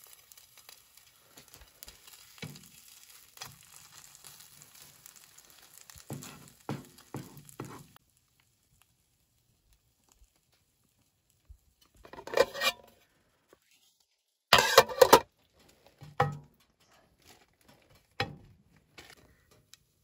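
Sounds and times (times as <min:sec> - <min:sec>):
spatula clattering on metal cookware: 0:12.1 - 0:12.8, 0:14.6 - 0:15.2, 0:16.0 - 0:16.5.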